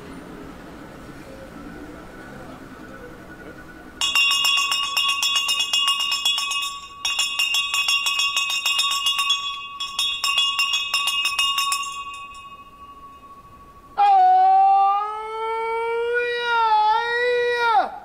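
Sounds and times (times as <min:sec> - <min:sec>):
handbell ringing: 0:04.0 - 0:14.0.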